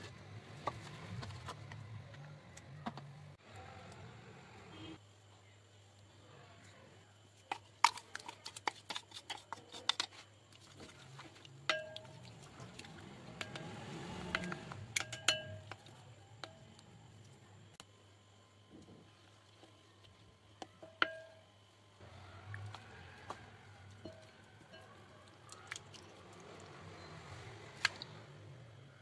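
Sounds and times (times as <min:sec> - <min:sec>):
soft wet stirring: 0:06.6 - 0:17.8, 0:18.6 - 0:28.2
spoon tapping glass bowl: 0:11.7 - 0:12.1, 0:14.3 - 0:15.8, 0:20.8 - 0:21.5.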